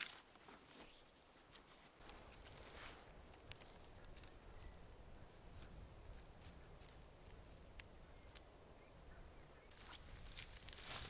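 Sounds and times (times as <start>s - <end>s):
faint forest ambience: 0.0s - 11.0s.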